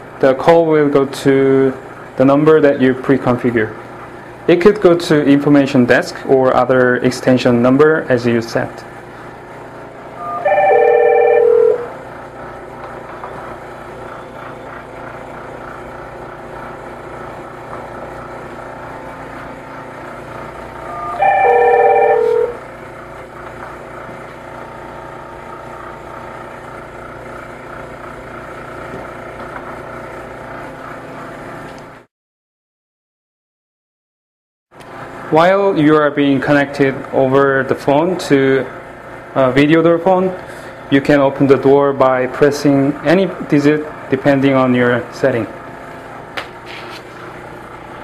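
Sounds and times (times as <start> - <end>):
steady hum: 0.0 - 31.6
electronic ring tone: 10.2 - 12.0, 20.8 - 22.7.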